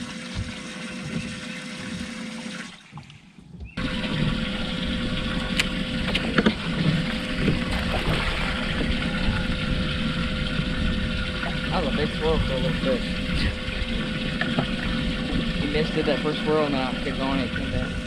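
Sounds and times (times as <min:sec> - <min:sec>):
low hum: 0:03.8 - 0:18.0
rushing water: 0:03.8 - 0:18.0.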